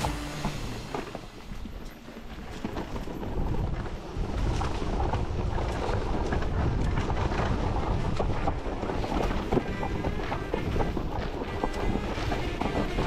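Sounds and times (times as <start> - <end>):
bike rattling: 0.0 - 13.0
wind on microphone: 2.5 - 13.0.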